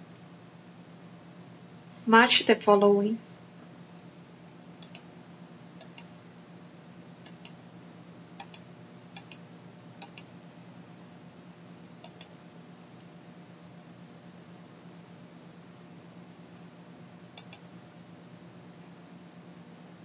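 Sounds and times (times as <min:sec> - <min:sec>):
faint low hum: 0:00.0 - 0:20.0
mouse button clicking: 0:04.8 - 0:05.0, 0:05.8 - 0:06.1, 0:07.3 - 0:07.6, 0:08.4 - 0:08.6, 0:09.2 - 0:09.4, 0:10.0 - 0:10.3, 0:12.0 - 0:12.3, 0:17.4 - 0:17.6.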